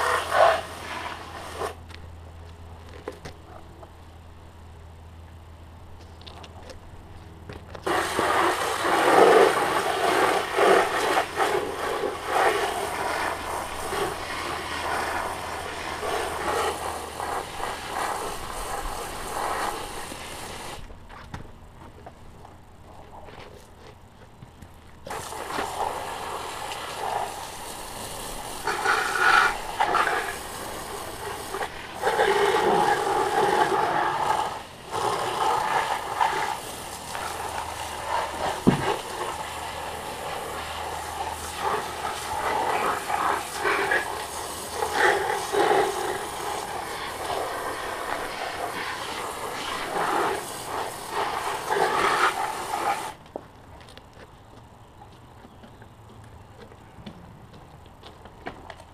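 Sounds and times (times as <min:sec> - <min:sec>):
hose water spraying: 0:00.0 - 0:01.8, 0:07.8 - 0:20.9, 0:25.0 - 0:53.2.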